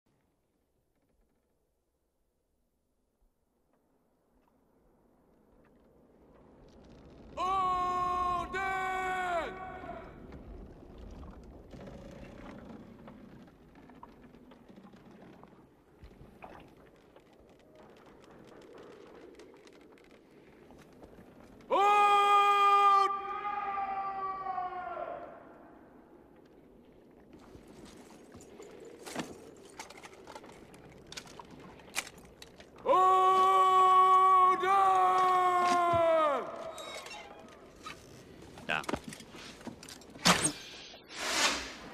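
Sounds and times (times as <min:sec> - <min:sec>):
wooden hull creaks and knocks: 0:10.1 - 0:21.6.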